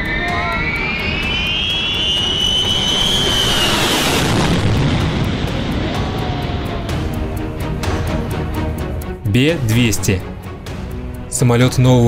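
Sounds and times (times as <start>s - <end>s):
jet flying overhead: 0.0s - 7.9s.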